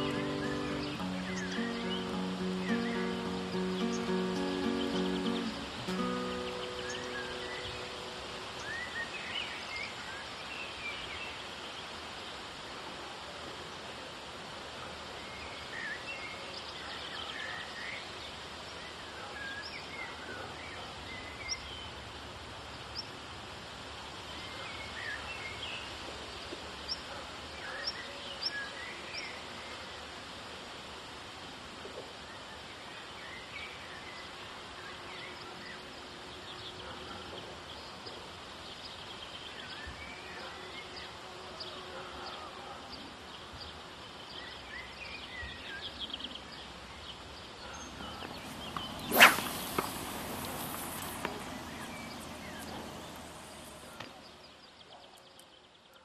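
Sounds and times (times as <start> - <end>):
birds chirping and singing: 0.0 - 9.2, 47.6 - 54.6
steady outdoor hiss: 0.0 - 56.0.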